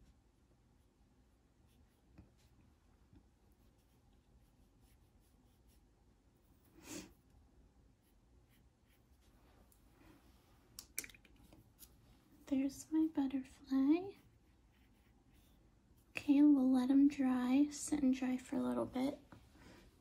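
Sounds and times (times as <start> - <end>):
paintbrush scratching on paper: 1.6 - 2.6, 3.4 - 7.2, 8.0 - 9.4, 12.6 - 16.2.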